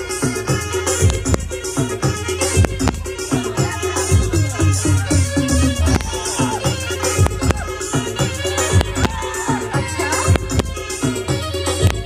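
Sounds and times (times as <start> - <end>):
folk dance music: 0.0 - 12.0
steady drum beat: 0.0 - 12.0
wavering melody: 3.5 - 10.5.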